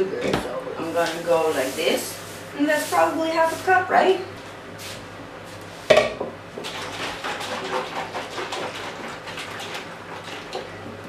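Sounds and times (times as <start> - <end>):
kitchen items rustling and clattering: 0.2 - 4.2.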